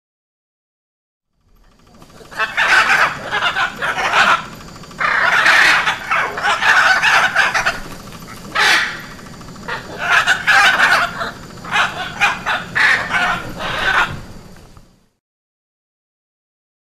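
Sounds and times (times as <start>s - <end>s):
macaw squawking harshly: 2.2s - 14.5s.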